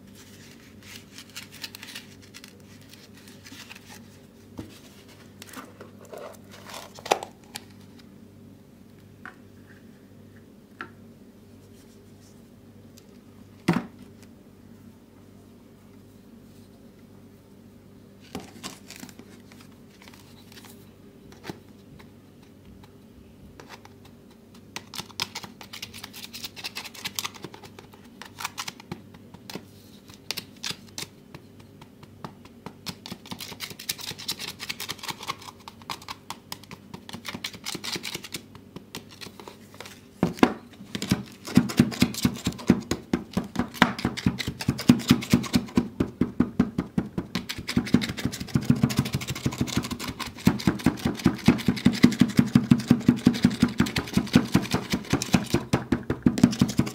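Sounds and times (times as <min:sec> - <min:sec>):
pestle crunching kinetic sand: 0:47.1 - 0:56.9.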